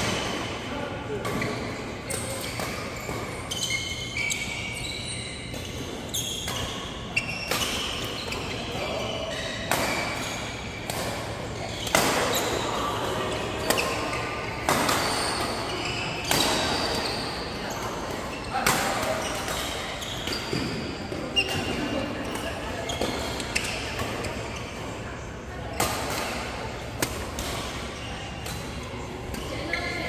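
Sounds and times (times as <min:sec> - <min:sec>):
sports shoes squeaking on floor: 0:01.4 - 0:10.9, 0:13.6 - 0:24.8, 0:29.4 - 0:30.0
badminton rackets hitting shuttlecock: 0:10.8 - 0:20.8, 0:25.8 - 0:30.0.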